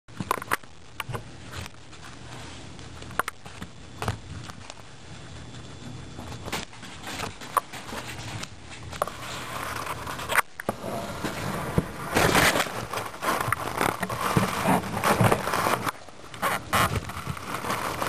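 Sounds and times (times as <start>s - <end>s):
guinea pigs crunching carrot: 0.1s - 10.7s
soft rustle: 1.3s - 18.0s.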